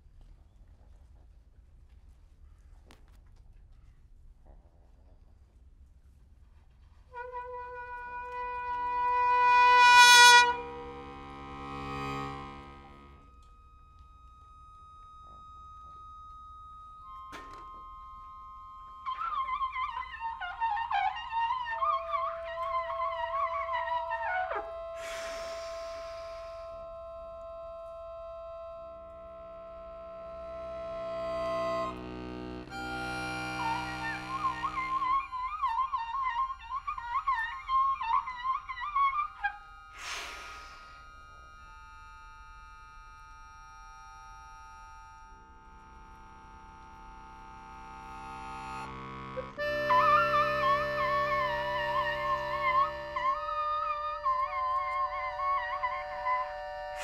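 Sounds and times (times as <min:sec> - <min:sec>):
trumpet holding a note: 0:07.1 - 0:13.4, 0:21.8 - 0:37.6, 0:48.8 - 0:57.0
accordion low held chord: 0:07.2 - 0:19.0, 0:22.2 - 0:36.8, 0:39.3 - 0:57.0
breathy rush of air: 0:25.0 - 0:26.7, 0:40.0 - 0:41.0.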